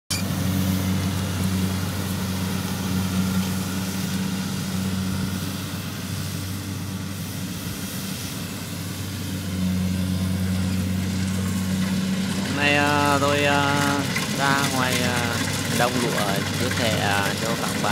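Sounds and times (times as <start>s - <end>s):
combine harvester droning: 0.1s - 17.9s.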